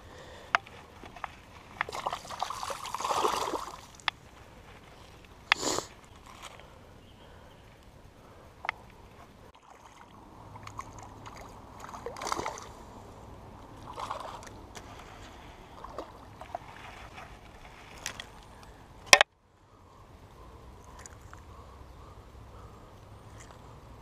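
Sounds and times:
pond water splashing: 0.0 - 6.9, 8.5 - 19.2, 22.6 - 24.0.

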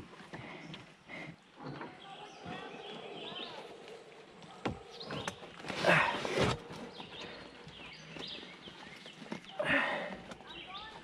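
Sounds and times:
rustling scrape: 5.0 - 7.1.

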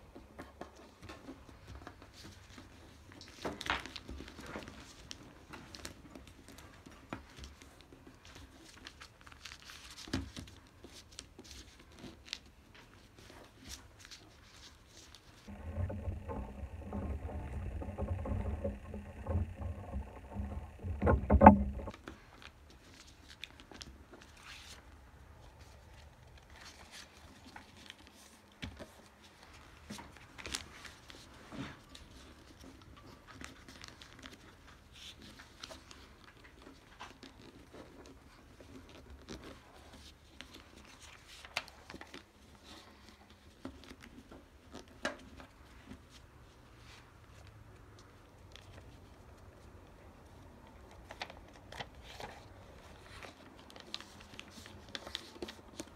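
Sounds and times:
paper crinkling and folding: 7.4 - 15.3, 51.0 - 55.9
low rumbling noise: 15.5 - 21.9.

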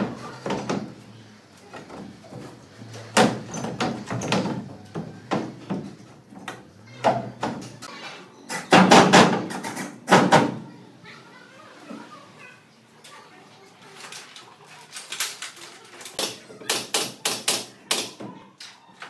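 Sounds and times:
knocks and bangs: 8.6 - 10.7.

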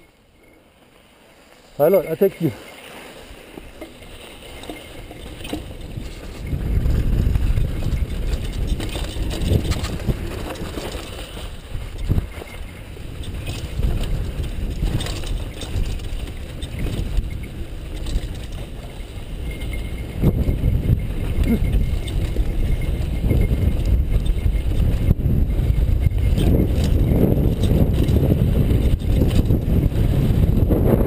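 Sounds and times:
bike tyres skidding on dirt: 0.0 - 31.0
bike knocking and rattling: 1.8 - 31.0
wind rumbling on microphone: 3.2 - 31.0.

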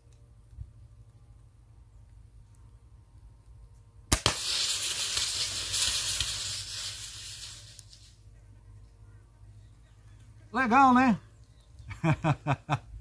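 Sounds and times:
air rifle shot cracking: 4.1 - 6.5
aerosol can hissing: 4.2 - 8.2.

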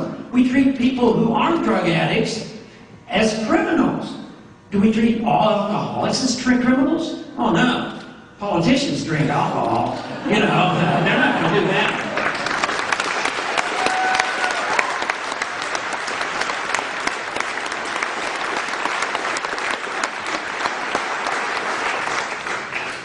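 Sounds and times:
audience applauding: 11.4 - 23.0.

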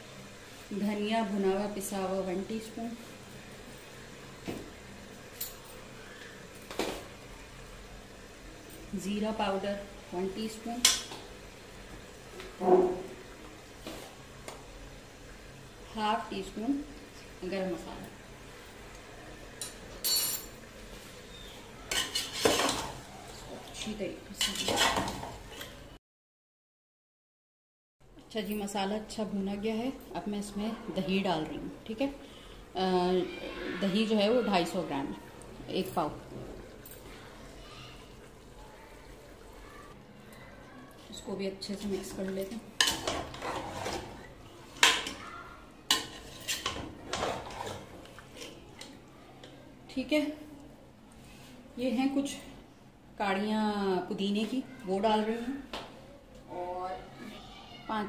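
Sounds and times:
metal utensils clinking on pot: 19.6 - 20.6, 21.9 - 23.0, 24.3 - 25.7, 42.0 - 45.2, 45.9 - 48.9
spatula scraping and stirring in pot: 21.4 - 23.1, 24.3 - 25.8, 42.8 - 45.2, 45.9 - 48.9.

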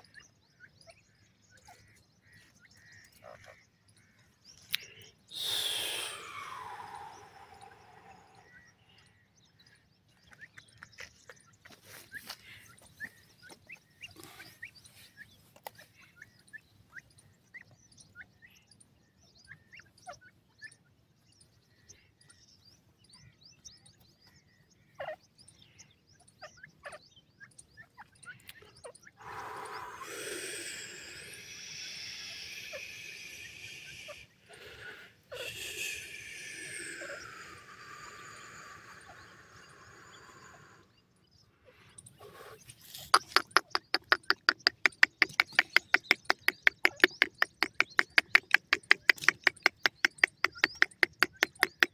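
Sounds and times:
drawn-out multi-tone call: 5.3 - 8.6, 29.1 - 40.9, 42.8 - 51.9
chicks chirping: 26.2 - 40.9, 42.6 - 51.9.

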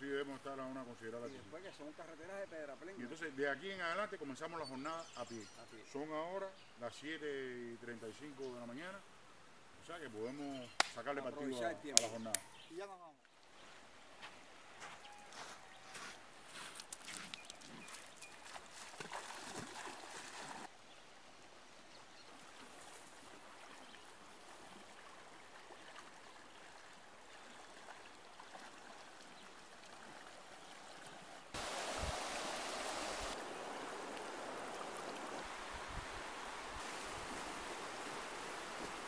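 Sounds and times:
river flowing over stones: 24.2 - 39.0.

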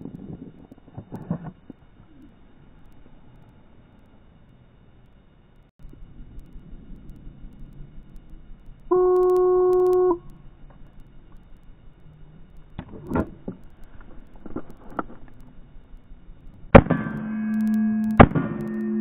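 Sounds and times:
faint clicks and rustling: 0.0 - 16.7
pistol shot: 16.7 - 17.2, 18.2 - 18.6
shot timer beep: 16.8 - 19.0
ringing tone: 16.9 - 19.0.

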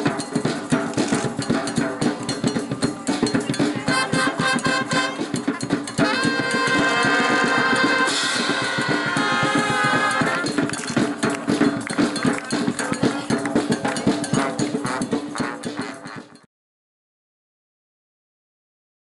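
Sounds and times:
fast drumming: 0.0 - 16.5.

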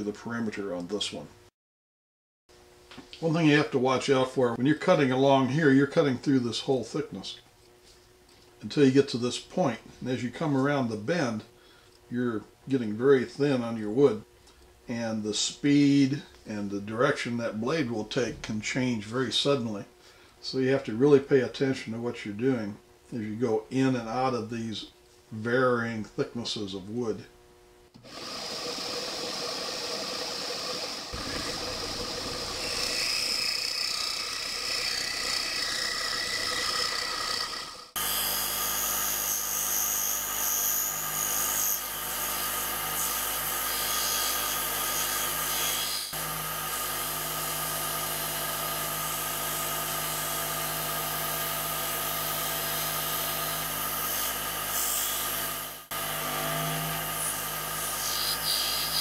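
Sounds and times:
scroll saw cutting wood: 28.0 - 59.0.

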